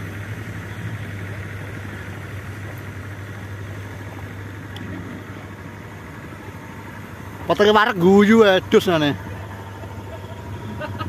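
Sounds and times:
low droning hum with hiss: 0:00.0 - 0:11.0.

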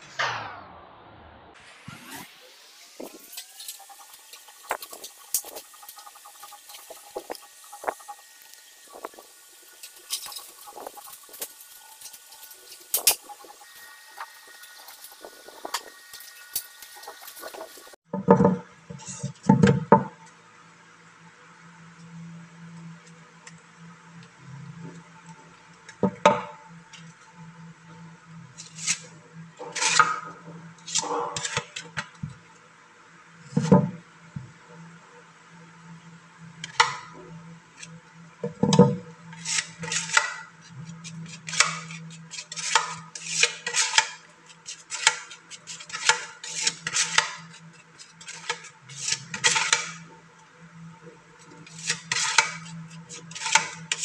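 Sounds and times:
low hum: 0:00.0 - 0:18.0.

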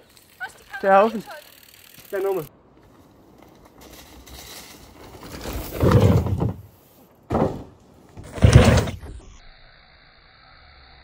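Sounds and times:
bike tyres rushing over dirt: 0:00.0 - 0:09.1
bike landing thuds: 0:05.2 - 0:09.3.

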